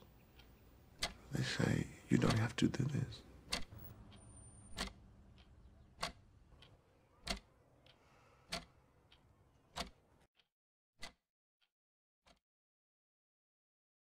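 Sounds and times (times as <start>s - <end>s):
clock ticking: 0.0s - 10.2s
low background noise: 0.0s - 10.2s.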